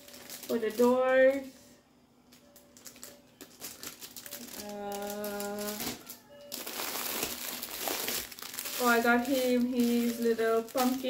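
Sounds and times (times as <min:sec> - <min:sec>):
plastic packaging crinkling: 0:00.0 - 0:01.5, 0:02.3 - 0:11.0
person humming: 0:04.5 - 0:06.0.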